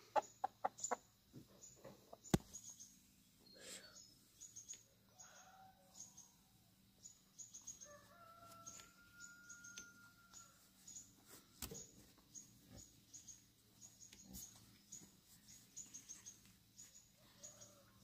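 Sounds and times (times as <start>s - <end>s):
small birds chirping: 0.0s - 18.0s
faint rooster crowing: 5.1s - 6.4s, 7.8s - 10.8s, 17.2s - 18.0s.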